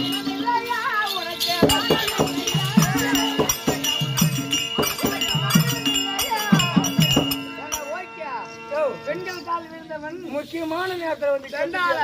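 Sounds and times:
ankle bells jingling: 0.0s - 12.0s
drum strokes: 1.5s - 7.9s.

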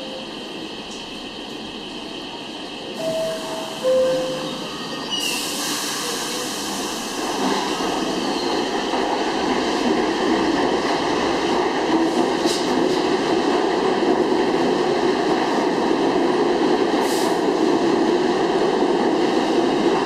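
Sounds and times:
train doors closing: 0.0s - 13.2s
subway train pulling out: 0.0s - 20.0s
two-note door chime: 3.0s - 4.8s.

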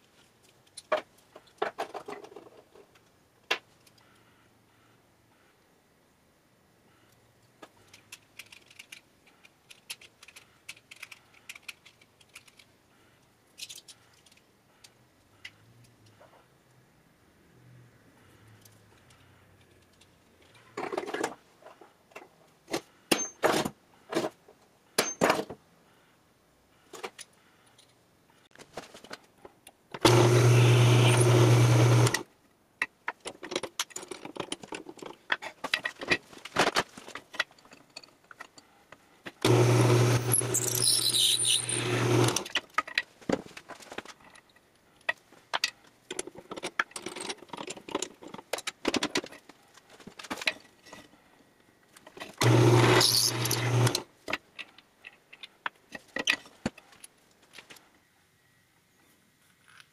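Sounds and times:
loud machine humming: 30.1s - 32.2s.

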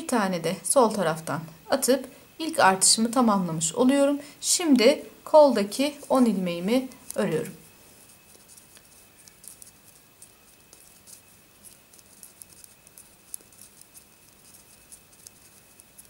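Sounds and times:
yarn scratching: 4.8s - 16.0s.

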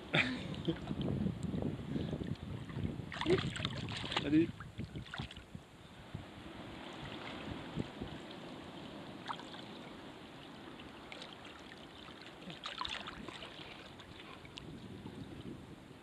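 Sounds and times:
sea water lapping: 1.8s - 15.6s
small water splashes: 2.2s - 5.5s, 6.7s - 14.9s.

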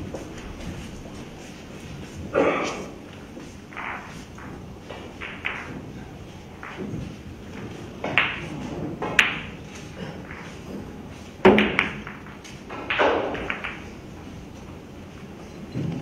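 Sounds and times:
billiard balls clicking: 3.0s - 16.0s
cue striking ball: 3.7s - 14.2s.

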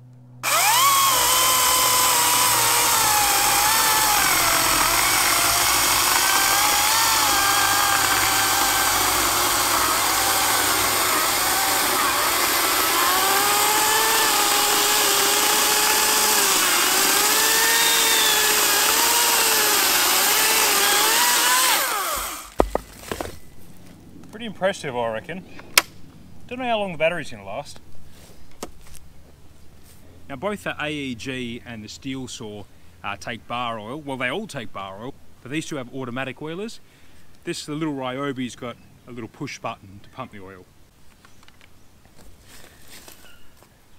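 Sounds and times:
electric chainsaw cutting log: 0.4s - 23.4s
thud: 22.2s - 23.4s.

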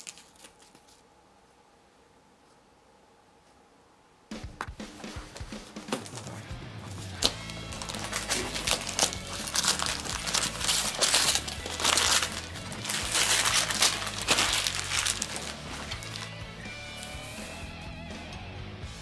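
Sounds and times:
wrapping paper ripping and crumpling: 0.0s - 1.0s, 5.3s - 17.5s.

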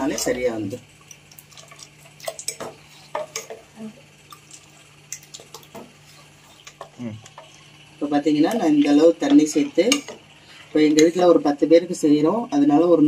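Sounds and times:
faint steady hum: 0.0s - 13.0s
ladle scraping a metal pot: 8.8s - 11.2s.

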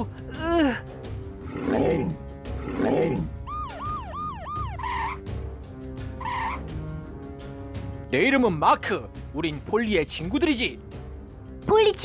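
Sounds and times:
rough growls: 1.3s - 3.4s
cartoon siren wailing: 2.8s - 5.2s.

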